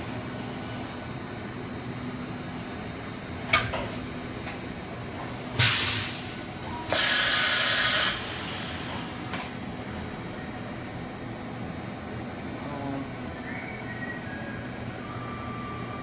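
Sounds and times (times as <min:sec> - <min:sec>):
machine steady hum: 0:00.0 - 0:16.0
loud air hiss: 0:05.5 - 0:06.3, 0:06.9 - 0:09.3.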